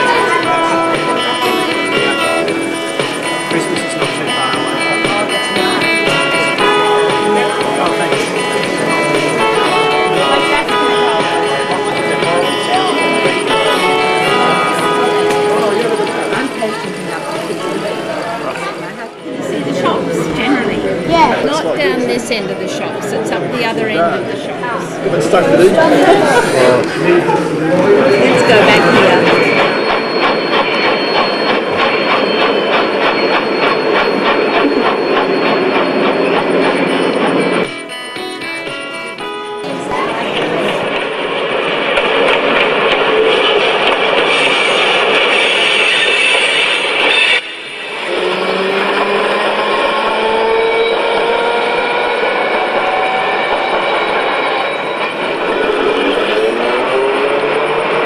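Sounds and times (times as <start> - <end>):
model locomotive rapid clicking: 0.0 - 19.2, 27.8 - 58.0
background din of people: 0.0 - 58.0
thin high whine: 0.0 - 58.0
model train motor whine: 40.1 - 58.0.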